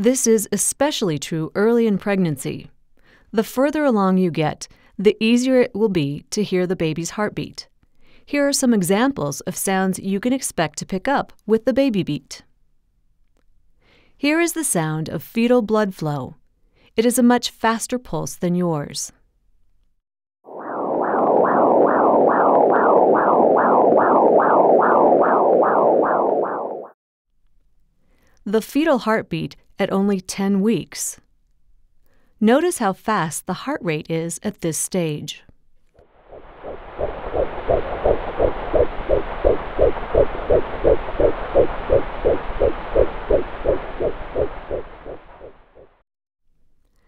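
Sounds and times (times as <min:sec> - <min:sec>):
whooshing fetal heartbeat pulse: 0:20.5 - 0:27.0, 0:36.0 - 0:46.0.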